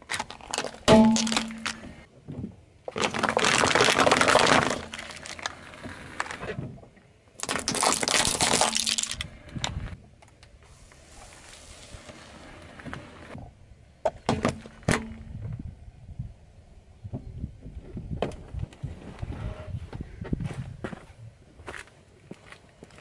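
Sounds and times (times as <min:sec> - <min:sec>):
paper cups crushed by tyre: 0:00.0 - 0:02.0, 0:02.9 - 0:06.4, 0:07.4 - 0:09.3
small objects crushed and crackling: 0:00.0 - 0:02.0, 0:02.9 - 0:06.4, 0:07.4 - 0:09.4.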